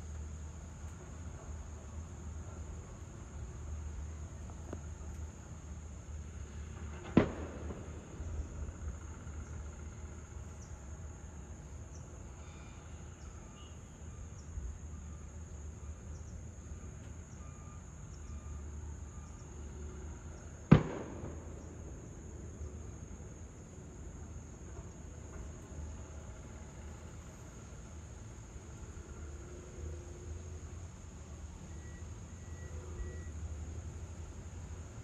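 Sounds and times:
high-pitched insect trill: 8.2s - 20.7s, 21.5s - 35.0s.

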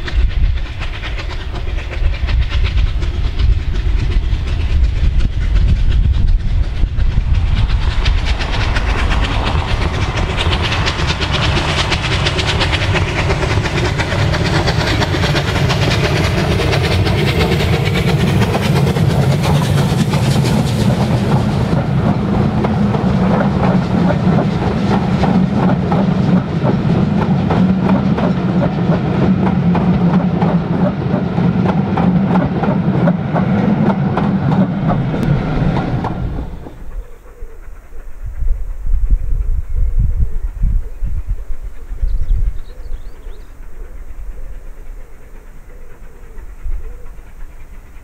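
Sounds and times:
train wheels clicking over rail joints: 0.0s - 38.5s
steam locomotive passing: 0.0s - 48.0s
low rumble: 17.2s - 43.2s.

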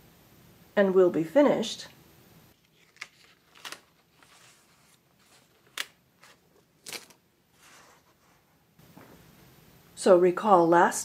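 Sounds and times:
paper sheets rustling: 2.6s - 8.5s.

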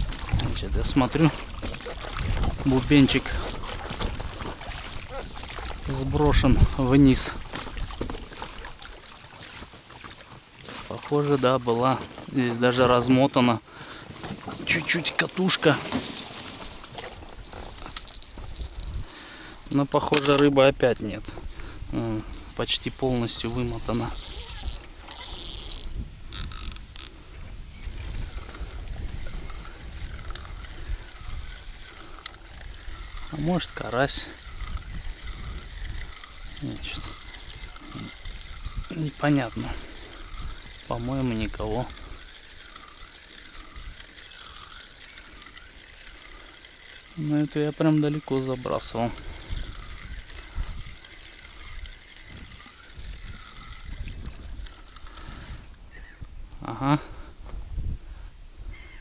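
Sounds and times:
water trickling and lapping: 0.0s - 20.7s, 21.4s - 56.2s
fishing reel clicking: 14.5s - 20.9s, 23.3s - 27.2s, 27.8s - 56.1s.

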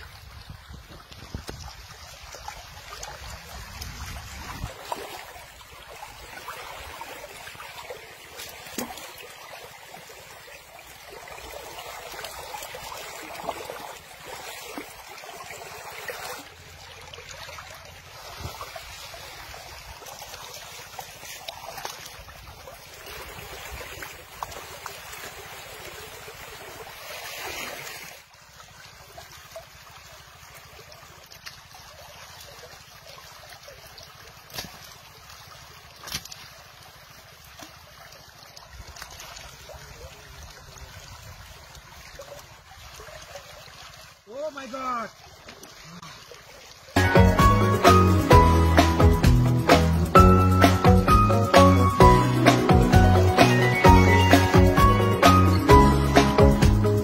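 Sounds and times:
river water running: 0.0s - 57.0s.

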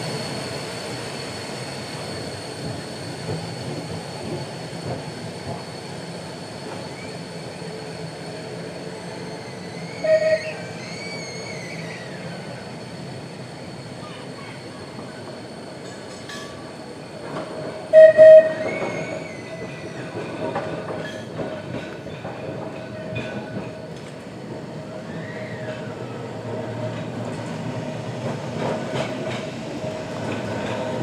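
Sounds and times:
tram wheels on rails: 0.0s - 31.0s
high wheel squeal: 8.2s - 13.0s, 17.9s - 20.2s.

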